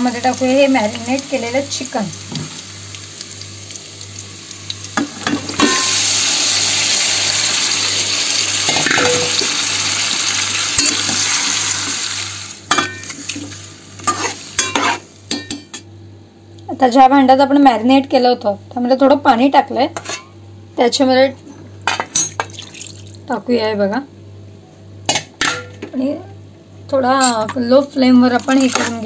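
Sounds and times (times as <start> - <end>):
chicken frying sizzle: 0.0 - 15.3
onions sizzling in hot oil: 0.0 - 15.4.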